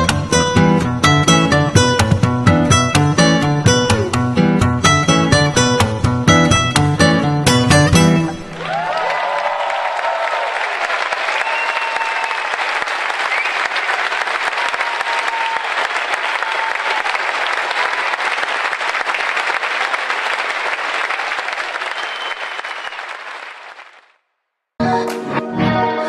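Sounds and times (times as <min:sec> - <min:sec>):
audience applauding: 0:08.4 - 0:24.2.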